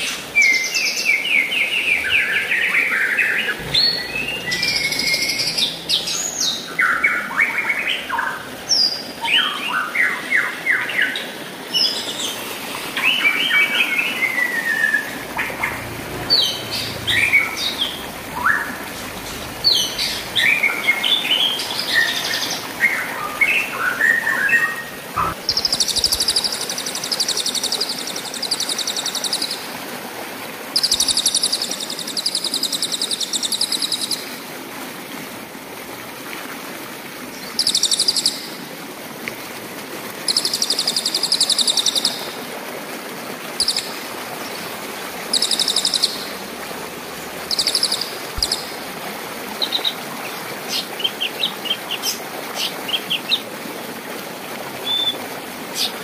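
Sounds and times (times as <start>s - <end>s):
stream rushing: 0.0s - 56.0s
songbird whistling notes: 3.8s - 5.7s.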